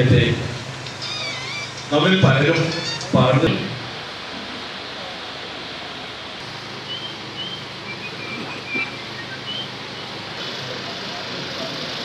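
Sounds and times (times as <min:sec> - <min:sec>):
hall room noise hiss: 0:00.0 - 0:12.0
high bird chirps: 0:06.8 - 0:10.2.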